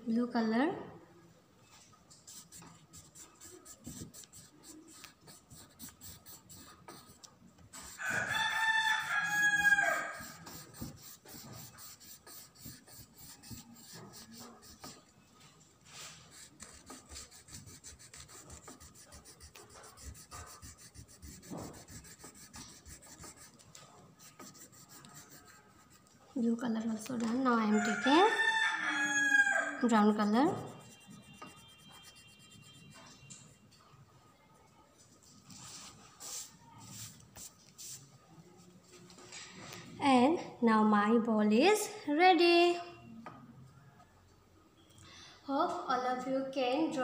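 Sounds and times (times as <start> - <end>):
crayon scratching on paper: 2.1 - 15.1, 15.9 - 26.3, 30.2 - 33.3, 35.6 - 38.0.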